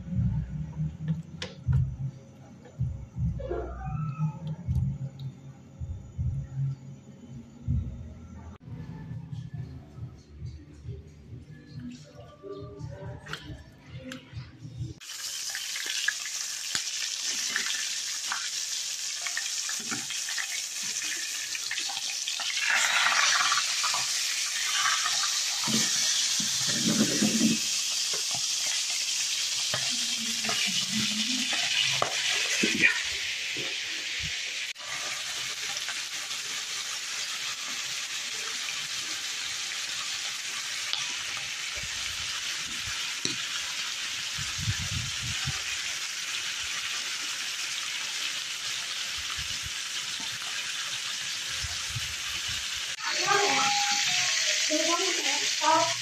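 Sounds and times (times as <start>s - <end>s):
sausage sizzling in a frying pan: 15.0s - 56.0s.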